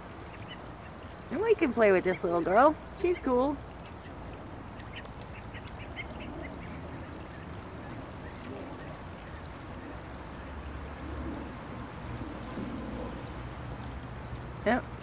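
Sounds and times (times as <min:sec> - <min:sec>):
ducklings peeping: 0:00.2 - 0:10.6.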